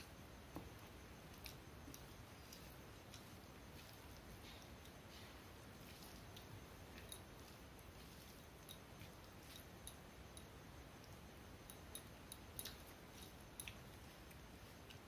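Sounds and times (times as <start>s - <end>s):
rice mixed by hand on steel plate: 0.0s - 10.3s
chewing: 1.2s - 11.2s, 11.8s - 15.0s.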